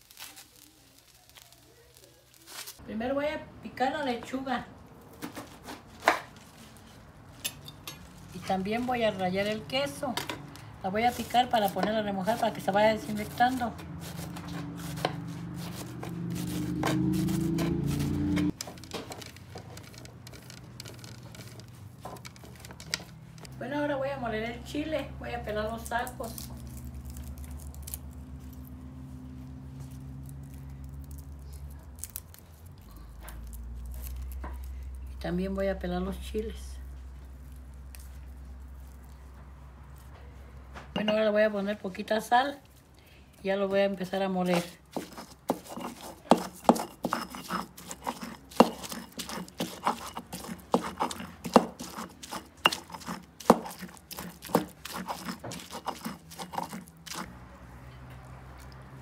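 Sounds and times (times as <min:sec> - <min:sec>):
garlic skins crackling: 0:00.0 - 0:02.8, 0:04.9 - 0:23.5, 0:24.8 - 0:40.1, 0:43.9 - 0:59.0
stone pestle pounding and grinding: 0:11.2 - 0:23.5, 0:44.5 - 0:57.3.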